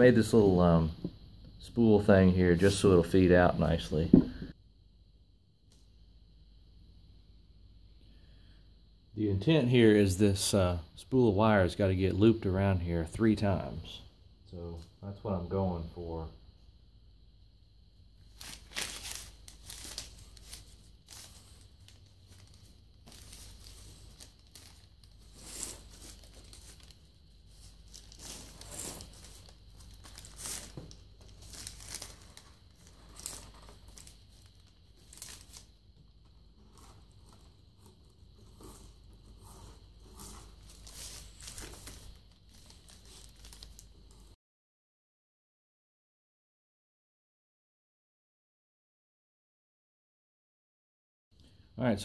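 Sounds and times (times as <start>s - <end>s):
paper rustling and crinkling: 18.2s - 44.4s.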